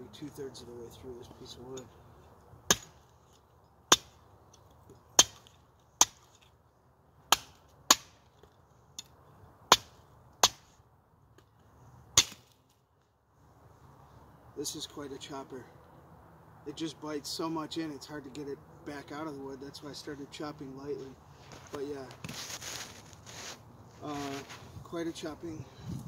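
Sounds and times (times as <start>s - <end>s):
knife chopping firewood: 2.6s - 6.6s, 7.3s - 9.1s, 9.7s - 10.7s, 12.1s - 12.6s.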